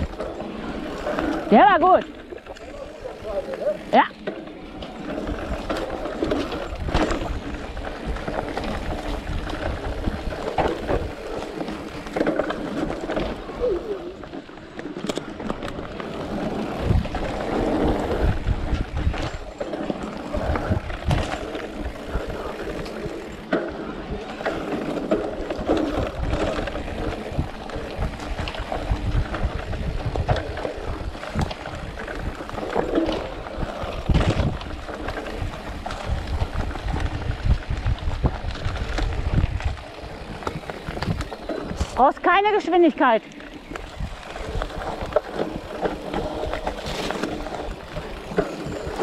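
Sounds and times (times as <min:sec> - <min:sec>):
bike knocking and rattling: 0:00.0 - 0:49.0
tyres rolling over dirt: 0:00.0 - 0:49.0
wind on microphone: 0:15.2 - 0:42.4, 0:43.4 - 0:49.0.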